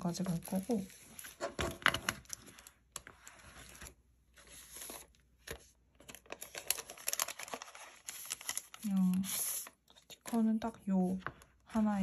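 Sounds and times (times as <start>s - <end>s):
plastic pouch crinkling: 6.1s - 9.7s.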